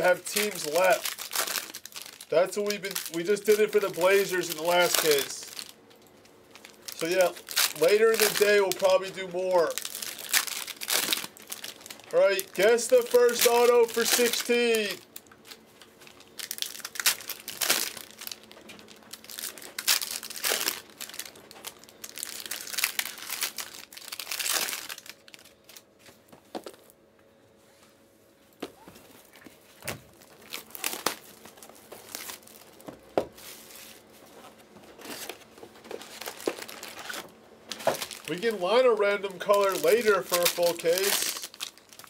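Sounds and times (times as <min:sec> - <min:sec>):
plastic wrappers crinkling and tearing: 0:00.0 - 0:26.9, 0:29.1 - 0:42.0.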